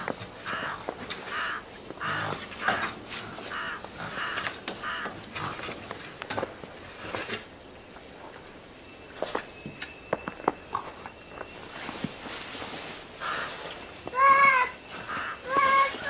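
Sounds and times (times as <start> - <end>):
harsh caw-like animal calls: 0.4 - 5.8, 13.2 - 16.0.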